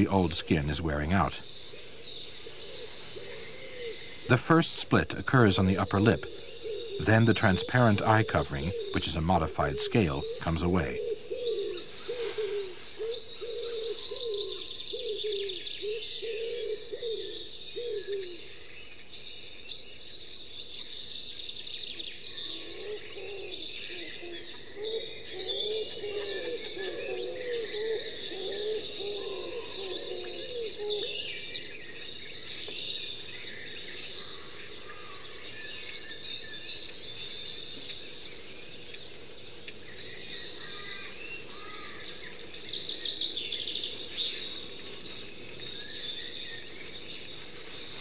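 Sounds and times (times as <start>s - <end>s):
birds chirping: 0.0s - 48.0s
bird low repeated call: 5.5s - 18.4s, 22.4s - 31.5s.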